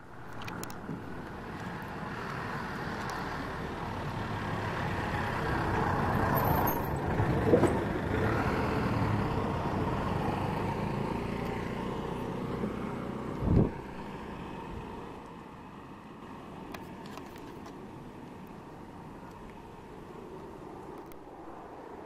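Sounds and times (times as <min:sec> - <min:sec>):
passing engine: 0:00.0 - 0:15.9.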